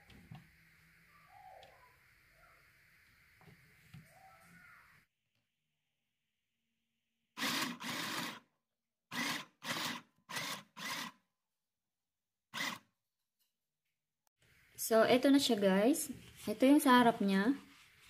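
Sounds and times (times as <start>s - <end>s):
sewing machine running: 7.4s - 8.4s, 9.1s - 11.1s.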